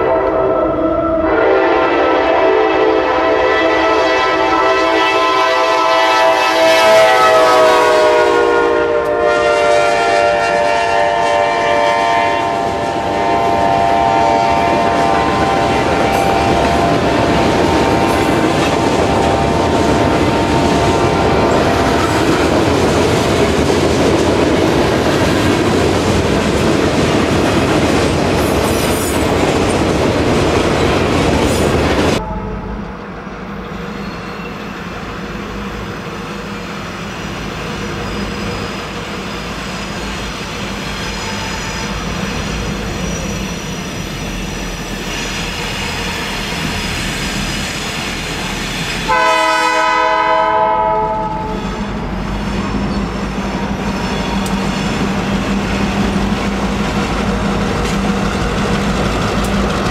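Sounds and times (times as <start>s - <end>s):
locomotive air horn blowing: 0.0s - 19.8s, 32.2s - 32.8s, 49.1s - 51.8s
train wheels clicking over rail joints: 51.8s - 59.9s.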